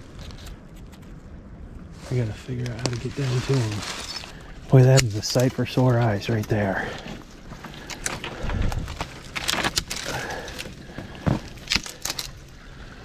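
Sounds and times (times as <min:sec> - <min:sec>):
dry leaves rustling and crunching: 0:01.9 - 0:06.4, 0:07.4 - 0:12.5
twigs snapping: 0:02.6 - 0:12.6.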